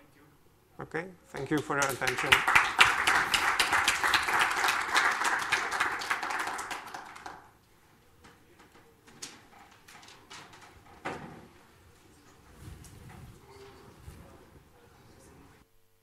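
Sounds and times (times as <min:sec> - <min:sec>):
audience applause: 0:01.4 - 0:07.6
scattered knocks and clicks: 0:08.2 - 0:11.5.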